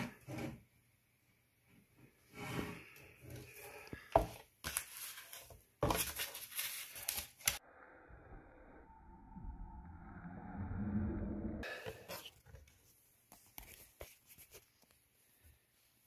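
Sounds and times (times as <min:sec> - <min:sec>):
cardboard rustling and scraping: 0:04.2 - 0:07.4.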